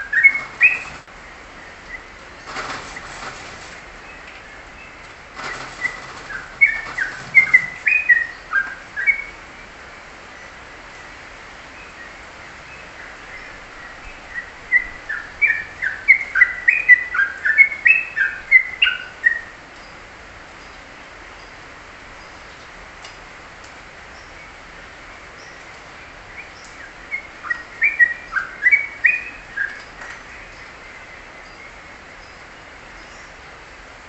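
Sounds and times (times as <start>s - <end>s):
songbird chirping whistles: 0.0s - 1.0s, 5.8s - 9.4s, 26.4s - 29.8s.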